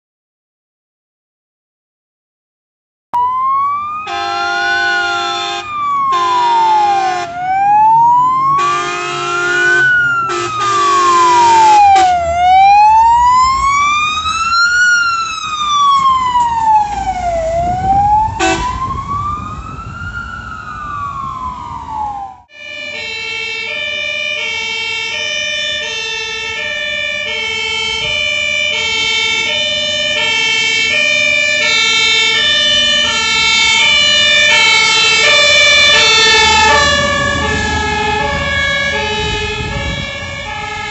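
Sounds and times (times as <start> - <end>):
fire engine siren wailing: 3.2 - 40.9
two-tone siren: 3.2 - 40.9
air horn blasts: 4.0 - 7.4, 8.5 - 12.2, 18.4 - 18.8, 34.5 - 40.9.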